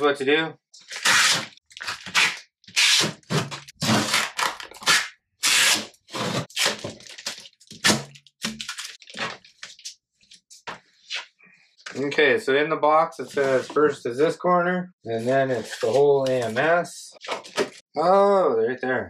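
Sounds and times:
plastic film being peeled: 0:00.9 - 0:03.1, 0:03.9 - 0:09.9.

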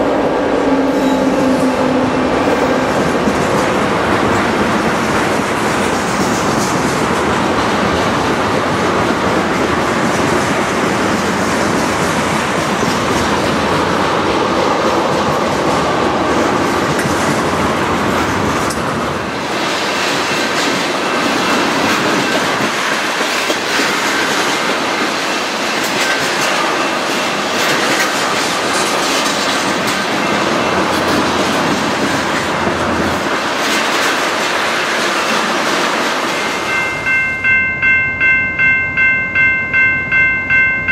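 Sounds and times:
deep train rumble: 0:00.0 - 0:40.9
train wheels clattering on rails: 0:00.8 - 0:37.6.

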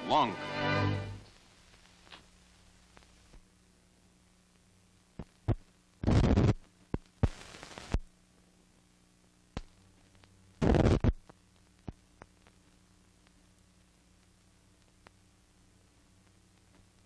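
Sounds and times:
bursts of crackling static: 0:01.3 - 0:17.0
film clicks and pops: 0:05.2 - 0:08.1, 0:09.5 - 0:15.2.

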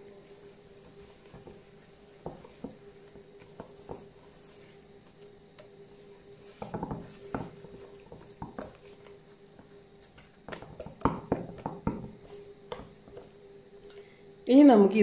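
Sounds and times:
whisk knocking against metal bowl: 0:02.2 - 0:04.2, 0:06.5 - 0:09.0, 0:09.6 - 0:13.3.

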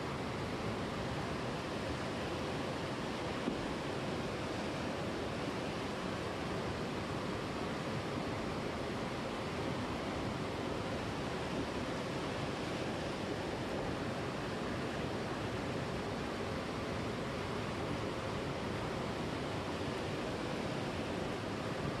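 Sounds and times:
river water flowing over rocks: 0:00.0 - 0:22.0.

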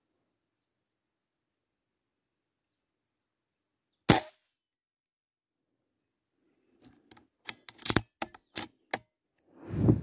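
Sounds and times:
sharp clicks and knocks: 0:06.8 - 0:09.1.

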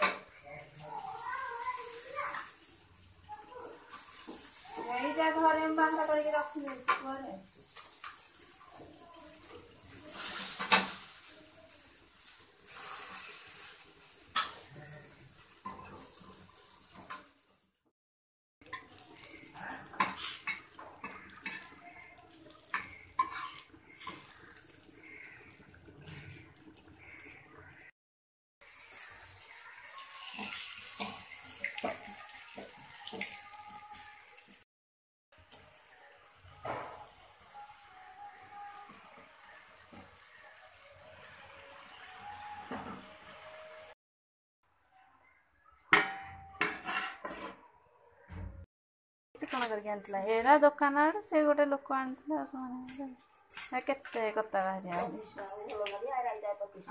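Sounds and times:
vegetables sizzling in oil: 0:00.0 - 0:17.8, 0:18.6 - 0:27.9, 0:28.6 - 0:34.7, 0:35.3 - 0:44.0
metal utensil scraping and clinking: 0:03.9 - 0:11.4, 0:12.2 - 0:17.3, 0:18.6 - 0:27.8, 0:29.0 - 0:34.4, 0:36.6 - 0:43.8, 0:46.0 - 0:47.6, 0:49.4 - 0:56.9
metal spatula scraping pan: 0:18.6 - 0:27.9, 0:29.8 - 0:34.4, 0:46.0 - 0:47.7.

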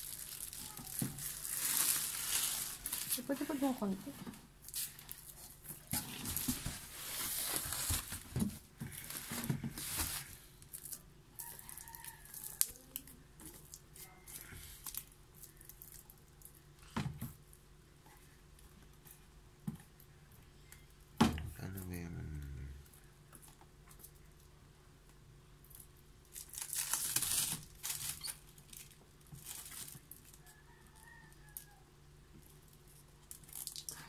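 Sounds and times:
plastic wrap crinkling and tearing: 0:00.0 - 0:16.6, 0:25.6 - 0:30.4, 0:32.7 - 0:34.0.

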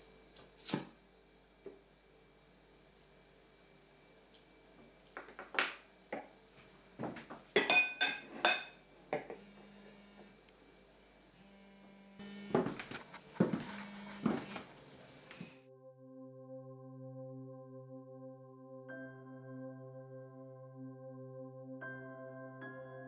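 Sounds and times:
tableware clinking on a table: 0:07.6 - 0:09.3.

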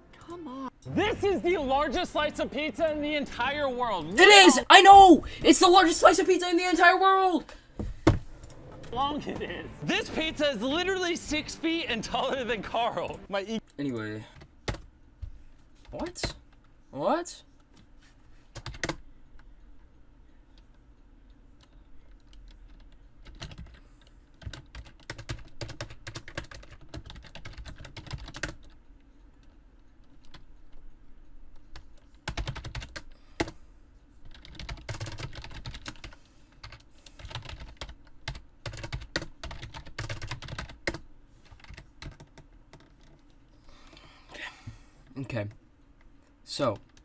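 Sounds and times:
typing on computer keyboard: 0:18.5 - 0:19.0, 0:21.6 - 0:28.8, 0:31.5 - 0:33.6, 0:34.2 - 0:43.2.

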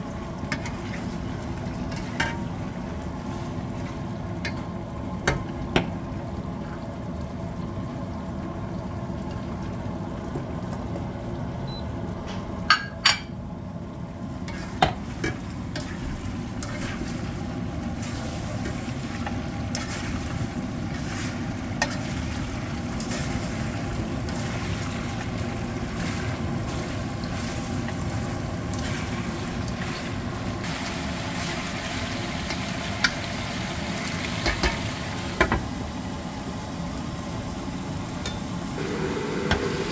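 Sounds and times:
meat sizzling in a wok: 0:14.3 - 0:39.9.

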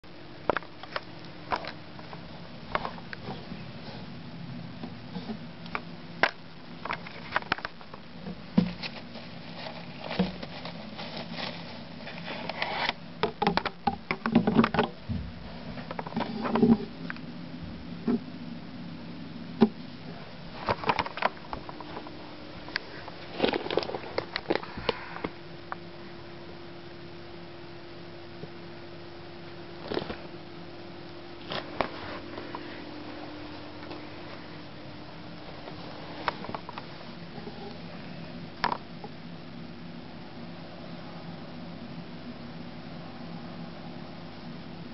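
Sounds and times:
faint low hum: 0:00.0 - 0:44.9
wood shavings rustling: 0:06.8 - 0:12.9.

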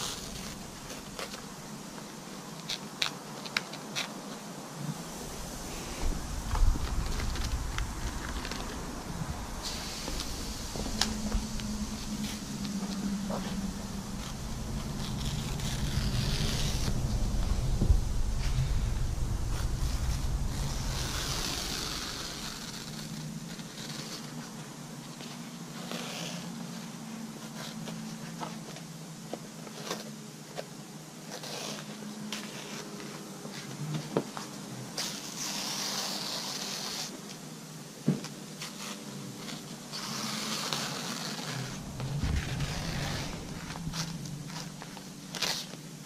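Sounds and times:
steady low hum: 0:00.0 - 0:03.0, 0:04.4 - 0:25.6, 0:39.1 - 0:46.0.

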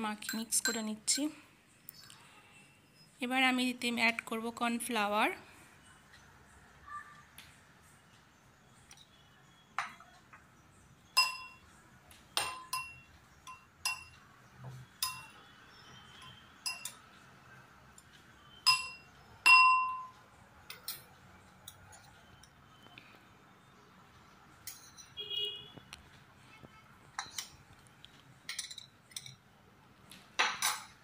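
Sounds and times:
metal spoon clinking glass bowl: 0:00.2 - 0:01.2, 0:11.2 - 0:11.6, 0:12.4 - 0:14.2, 0:15.0 - 0:15.4, 0:16.1 - 0:17.0, 0:18.6 - 0:20.1, 0:24.6 - 0:25.2, 0:28.5 - 0:29.4, 0:30.4 - 0:31.0.

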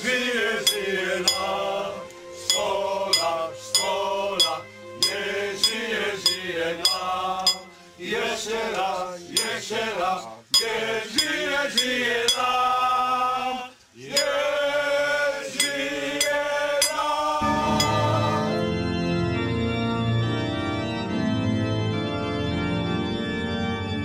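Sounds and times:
men singing a chant-like song: 0:00.0 - 0:18.6
light regular tick: 0:10.6 - 0:12.5.

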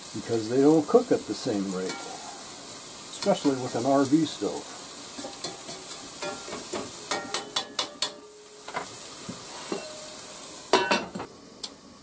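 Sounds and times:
onions sizzling in oil: 0:00.0 - 0:12.0
glass lid clattering on skillet: 0:05.2 - 0:08.9, 0:10.7 - 0:11.3.

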